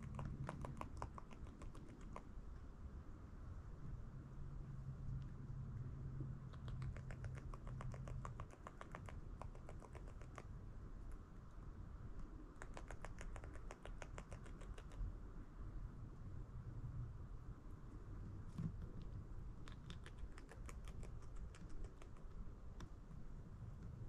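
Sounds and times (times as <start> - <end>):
beaver gnawing wood: 0.0 - 2.3, 12.6 - 15.0, 19.6 - 23.0.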